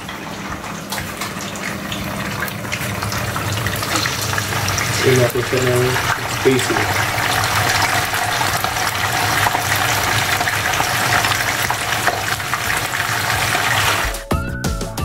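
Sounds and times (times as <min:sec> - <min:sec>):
tofu sizzling in hot oil: 0:02.0 - 0:05.1, 0:05.7 - 0:14.2
music: 0:13.9 - 0:15.0.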